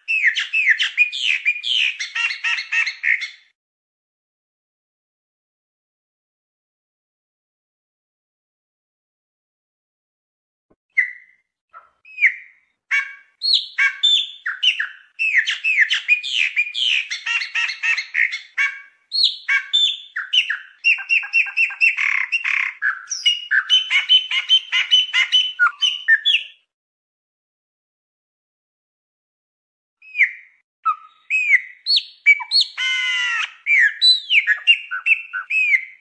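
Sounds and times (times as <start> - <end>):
blackbird singing: 0.1 - 3.5, 11.0 - 26.6, 30.0 - 36.0.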